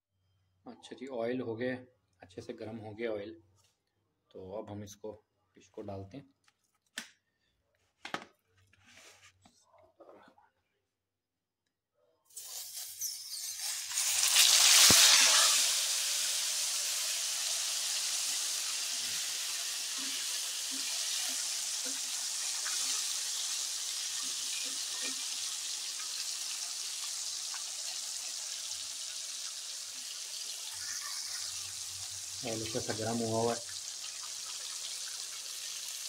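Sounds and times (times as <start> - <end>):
fish sizzling in hot oil: 12.4 - 36.0
deep frying hiss: 13.7 - 36.0.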